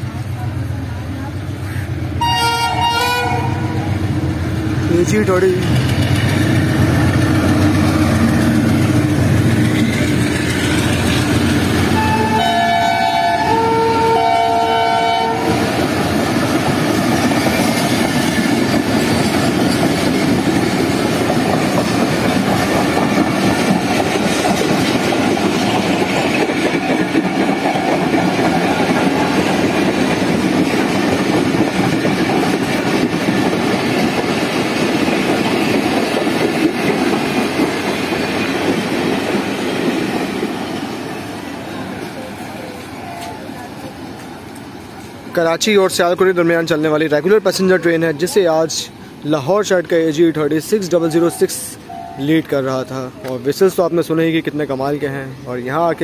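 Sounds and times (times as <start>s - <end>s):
train rumbling past on rails: 0.0s - 56.0s
locomotive horn blasts: 2.2s - 3.9s, 12.0s - 15.6s.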